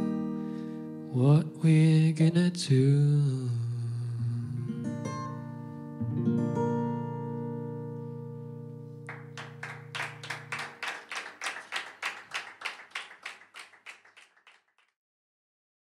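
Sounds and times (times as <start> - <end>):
small audience clapping: 9.0 - 15.0.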